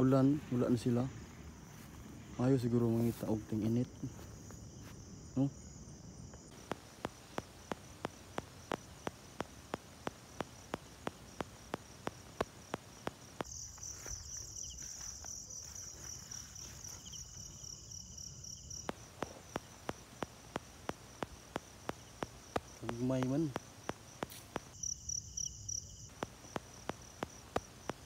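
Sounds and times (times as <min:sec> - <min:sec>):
night insects chirring: 0:00.0 - 0:28.0
sharp regular ticking: 0:06.3 - 0:28.0.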